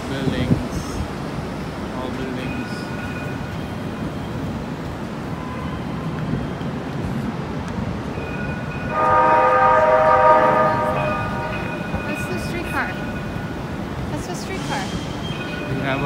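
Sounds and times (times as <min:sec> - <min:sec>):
city street traffic: 0:00.0 - 0:16.0
vehicle horn: 0:08.9 - 0:11.7.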